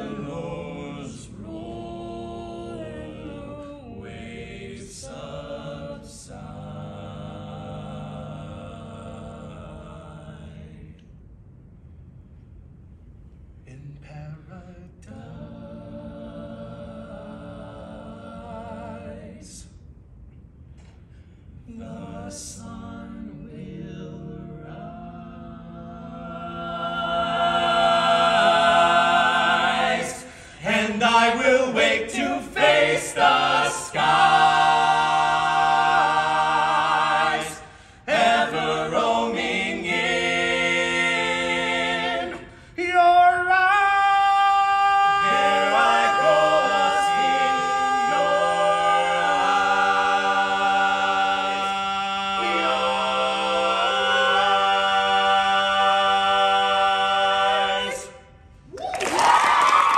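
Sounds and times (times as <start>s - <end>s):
quartet singing a cappella: 0.0s - 11.0s, 14.4s - 19.7s, 21.7s - 58.3s.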